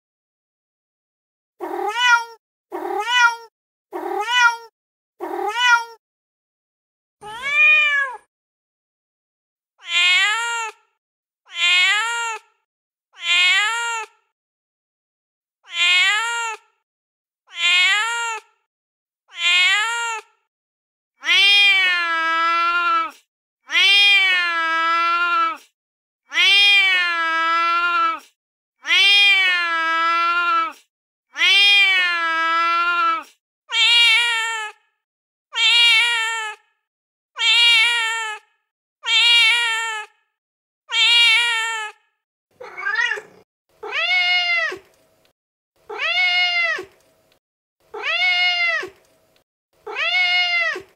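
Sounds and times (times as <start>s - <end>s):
cat meowing: 1.6s - 6.0s, 7.2s - 8.3s, 9.8s - 10.8s, 11.5s - 12.5s, 13.2s - 14.1s, 15.6s - 16.6s, 17.5s - 18.5s, 19.3s - 20.3s, 21.2s - 25.6s, 26.3s - 28.2s, 28.8s - 30.8s, 31.4s - 34.8s, 35.6s - 36.6s, 37.4s - 38.4s, 39.0s - 40.1s, 40.9s - 42.0s, 42.6s - 44.8s, 45.9s - 46.9s, 47.9s - 49.0s, 49.8s - 50.9s.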